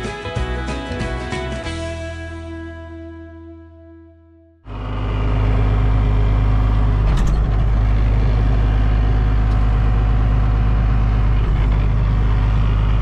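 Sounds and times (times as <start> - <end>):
tractor machine drone: 4.7 - 13.0.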